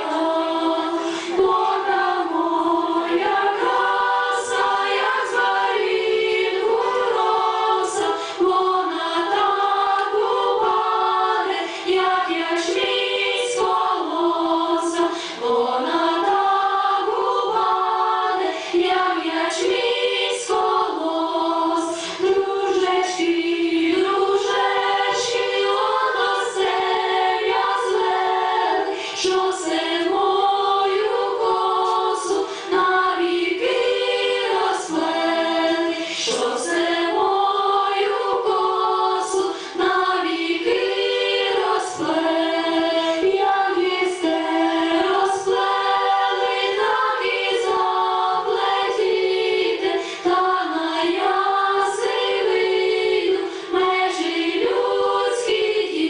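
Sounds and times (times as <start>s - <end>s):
women's choir singing unaccompanied: 0.0s - 56.0s.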